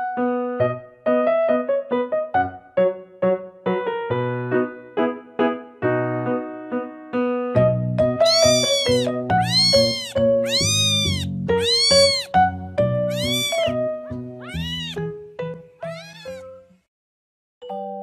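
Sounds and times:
piano music: 0:08.0 - 0:16.6
kitten meowing: 0:08.2 - 0:12.4, 0:13.1 - 0:15.0, 0:15.8 - 0:16.5.

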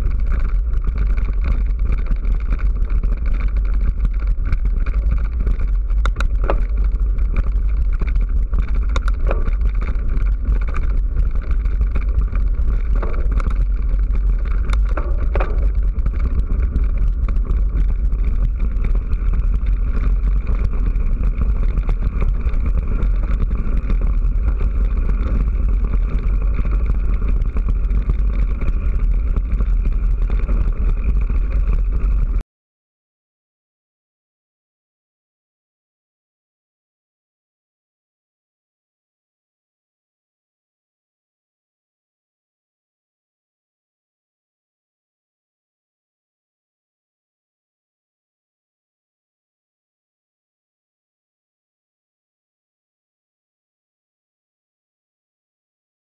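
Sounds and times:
wind rumble on moving camera: 0:00.0 - 0:32.4.

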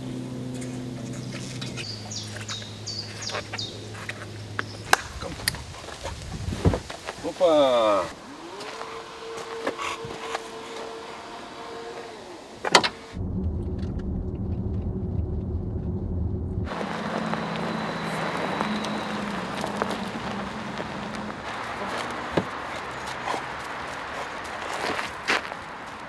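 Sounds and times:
car rumbling on the move: 0:00.0 - 0:07.0, 0:08.1 - 0:26.0
tyres crunching over gravel: 0:00.4 - 0:16.0, 0:16.7 - 0:26.0
faint hum: 0:08.2 - 0:21.5.

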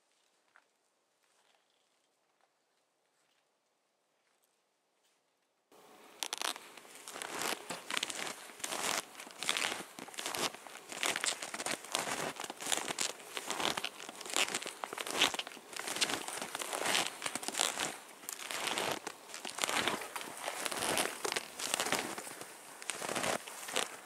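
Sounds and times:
clothing rustling: 0:06.2 - 0:24.0
footsteps crunching in snow: 0:06.2 - 0:24.0.

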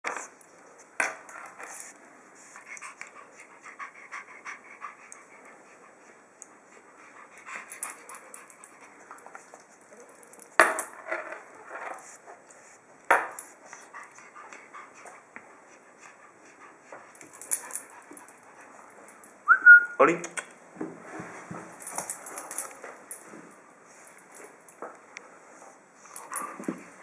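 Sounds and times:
puppy panting: 0:02.4 - 0:09.2, 0:13.7 - 0:19.0
metal collar tag clinking: 0:17.2 - 0:18.5, 0:21.8 - 0:23.3.

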